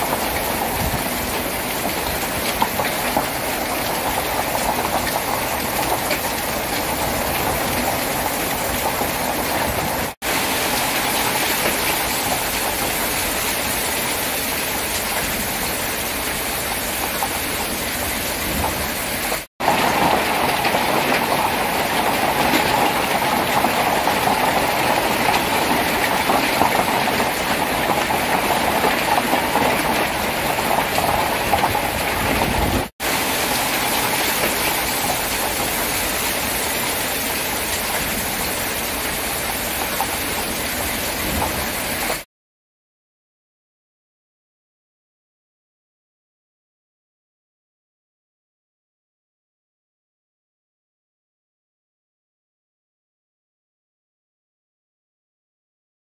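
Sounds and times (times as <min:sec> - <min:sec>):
hailstones pelting ground: 0:00.0 - 0:42.2.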